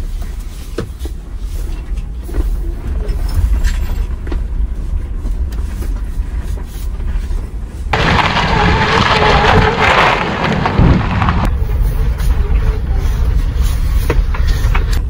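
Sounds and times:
low rumble from axle: 0:01.1 - 0:15.0
differential groaning creaks: 0:07.9 - 0:13.6.

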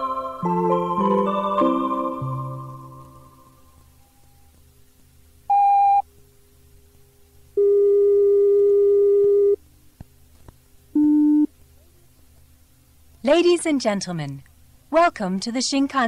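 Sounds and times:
low tape hum: 0:00.0 - 0:16.0
electronic beeps and tones: 0:05.5 - 0:06.0.

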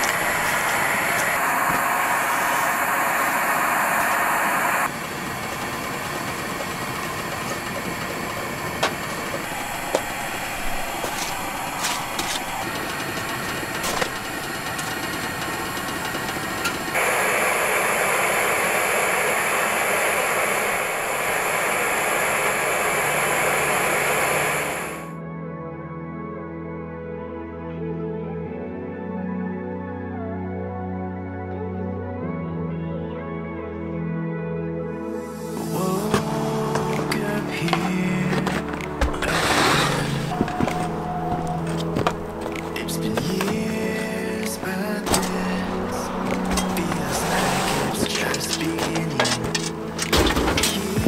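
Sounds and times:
pressure lantern hissing: 0:00.0 - 0:05.0, 0:09.3 - 0:25.1.

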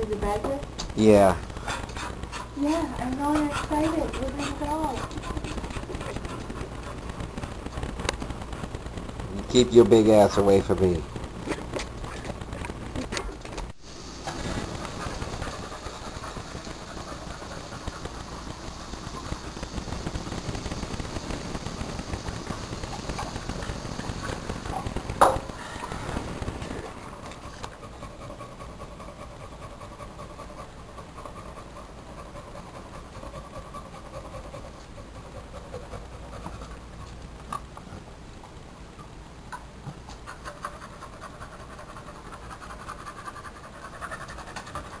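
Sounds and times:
dog panting: 0:01.6 - 0:07.9, 0:14.2 - 0:20.0, 0:26.7 - 0:37.2, 0:40.1 - 0:45.0.

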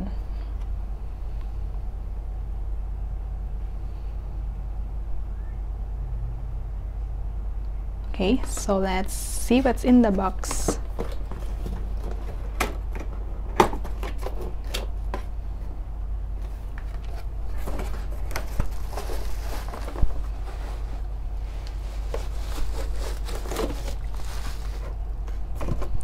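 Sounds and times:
cardboard box rustling and clicking: 0:10.4 - 0:15.3, 0:16.4 - 0:20.5, 0:22.0 - 0:24.9.

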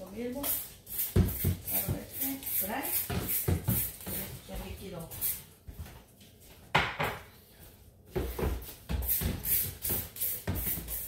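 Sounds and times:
spray bottle squirts: 0:09.0 - 0:11.0.

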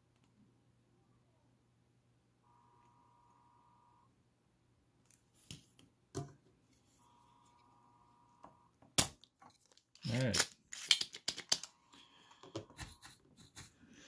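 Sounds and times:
faint high-pitched tone: 0:02.4 - 0:04.3, 0:07.0 - 0:08.8.

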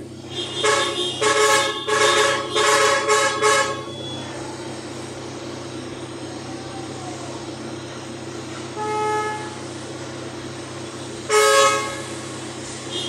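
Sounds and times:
idling engines hum: 0:00.0 - 0:13.0
car horn honking short blasts: 0:00.2 - 0:04.2, 0:08.8 - 0:09.6, 0:11.3 - 0:12.2.

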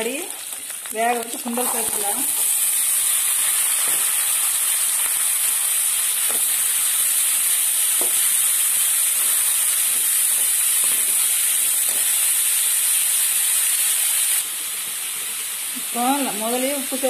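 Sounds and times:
chickpeas sizzling in a pan: 0:00.0 - 0:17.0.

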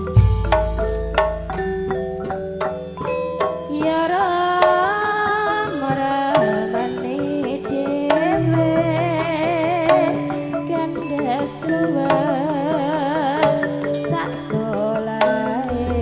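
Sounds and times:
drum rhythm: 0:00.0 - 0:16.0
metallophone notes: 0:00.0 - 0:16.0
person singing: 0:03.7 - 0:16.0.

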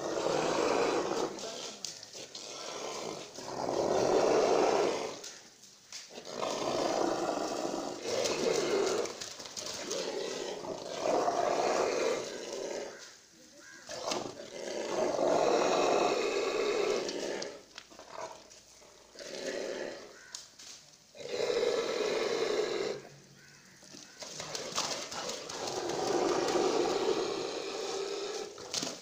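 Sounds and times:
bull rasping roaring breaths: 0:00.0 - 0:05.3, 0:06.2 - 0:13.0, 0:14.1 - 0:20.2, 0:24.4 - 0:28.7.

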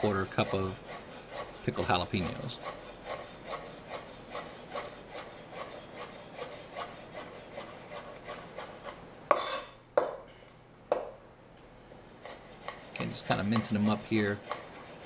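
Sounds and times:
knife chopping on wooden board: 0:12.2 - 0:15.0.

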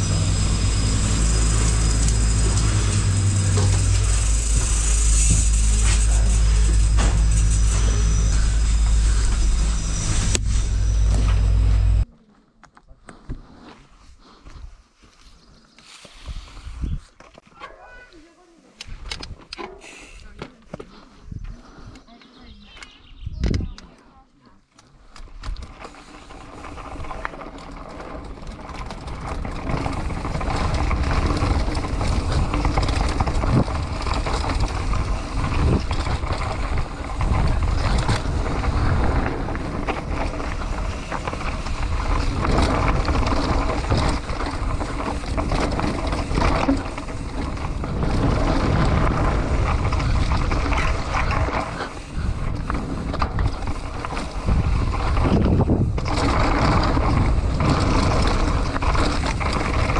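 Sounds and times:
bike rattling and knocking: 0:00.0 - 0:12.0, 0:25.3 - 0:59.9
bike tyre roar on dirt: 0:00.0 - 0:12.1, 0:25.3 - 0:59.9
wind on microphone: 0:16.3 - 0:17.1, 0:23.1 - 0:23.8, 0:29.3 - 0:59.9.

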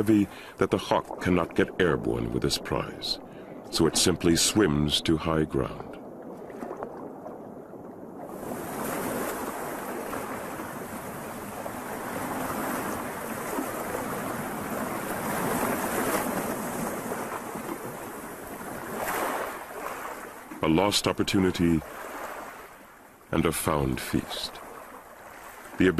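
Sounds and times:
water splashing and sloshing: 0:00.0 - 0:25.9.

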